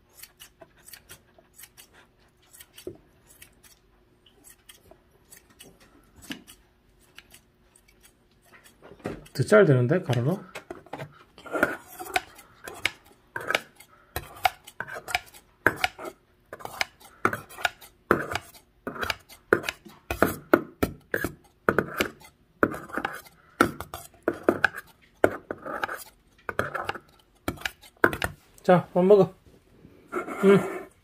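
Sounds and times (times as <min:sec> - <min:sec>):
knife chopping in metal bowl: 0:04.4 - 0:28.4.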